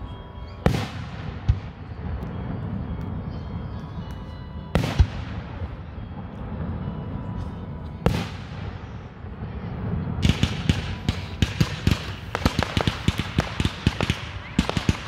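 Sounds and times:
firework pops and crackles: 0:10.2 - 0:15.0.

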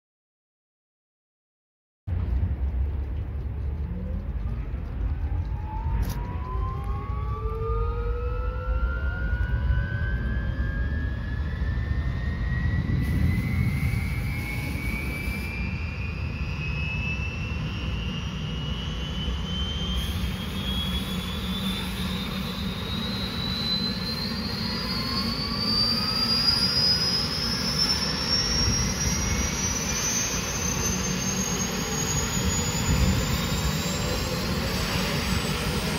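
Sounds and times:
low rumble: 0:02.1 - 0:20.5
helicopter turbine engine whine: 0:02.1 - 0:35.9.

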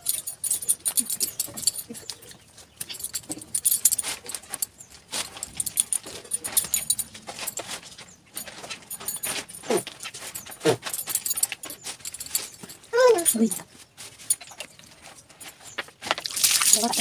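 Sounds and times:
bath water splashing: 0:16.2 - 0:17.0.

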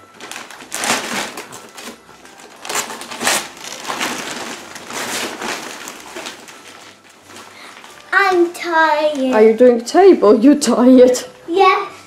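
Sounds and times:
wrapping paper rustling and crumpling: 0:00.0 - 0:09.6.

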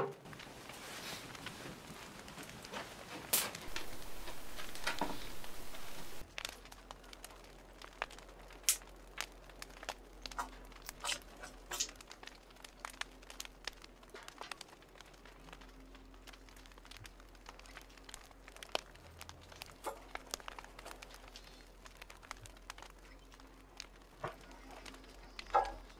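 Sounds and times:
wood fire crackling and popping: 0:00.0 - 0:25.9
steady hiss: 0:03.0 - 0:06.2.

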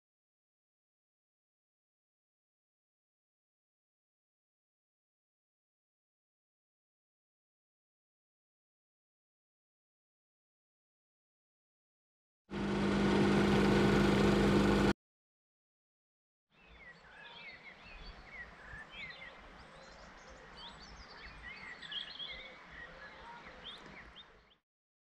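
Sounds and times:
espresso machine pump humming: 0:12.5 - 0:14.9
birds singing and chirping: 0:16.6 - 0:24.6.

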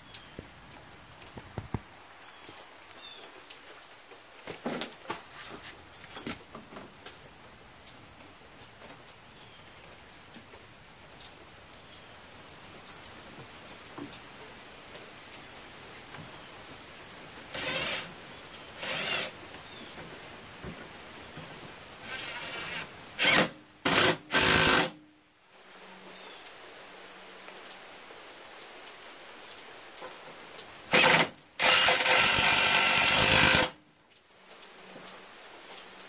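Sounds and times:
light clicks and knocks: 0:00.1 - 0:02.6
cordless drill driving screws: 0:17.5 - 0:18.1, 0:18.8 - 0:19.4, 0:22.0 - 0:25.0, 0:30.9 - 0:33.8.

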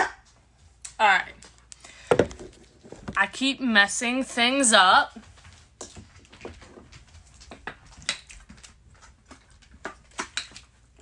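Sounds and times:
dog claws clicking on floor: 0:05.3 - 0:11.0.

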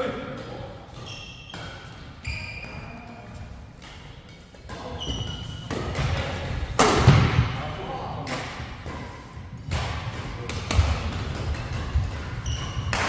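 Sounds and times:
racket hitting shuttlecock: 0:00.3 - 0:02.8, 0:03.8 - 0:07.6, 0:08.2 - 0:13.0
shoes squeaking on floor: 0:01.0 - 0:03.5, 0:04.8 - 0:06.0, 0:12.2 - 0:13.0.

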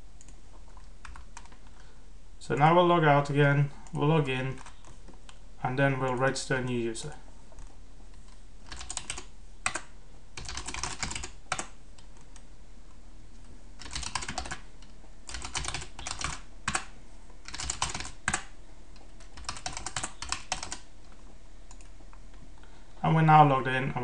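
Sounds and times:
typing on computer keyboard: 0:08.7 - 0:12.4, 0:13.8 - 0:14.6, 0:15.3 - 0:16.9, 0:17.5 - 0:20.9.

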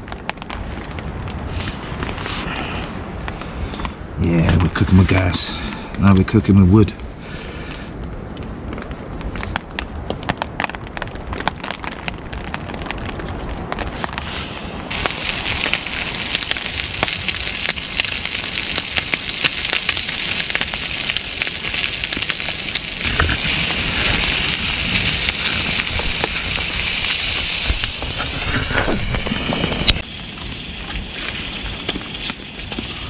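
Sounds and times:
wood fire crackling: 0:00.0 - 0:33.0
sausages sizzling in a pan: 0:14.9 - 0:33.0.

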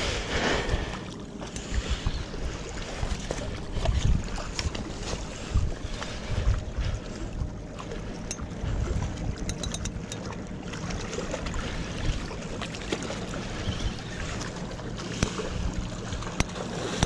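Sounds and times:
water lapping against rocks: 0:00.0 - 0:17.0
fishing reel clicking: 0:09.5 - 0:10.2.

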